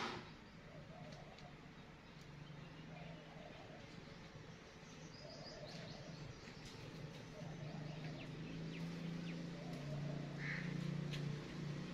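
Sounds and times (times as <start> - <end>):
steady low hum: 0.0 - 11.9
bird chirps and clicks: 1.0 - 2.6, 5.0 - 10.0.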